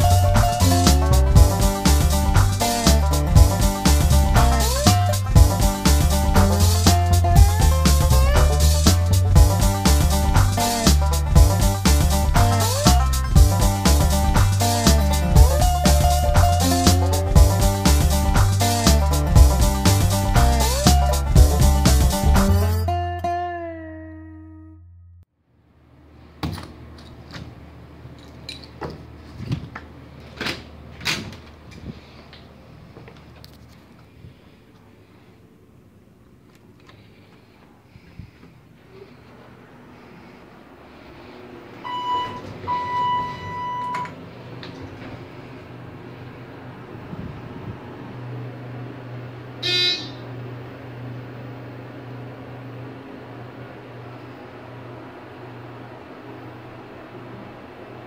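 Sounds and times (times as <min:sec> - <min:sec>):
elevator low hum: 0:00.0 - 0:23.3, 0:34.8 - 0:58.0
guitar note: 0:00.0 - 0:25.2, 0:49.6 - 0:50.3
loud buzzy beep: 0:41.8 - 0:44.1, 0:49.6 - 0:50.3.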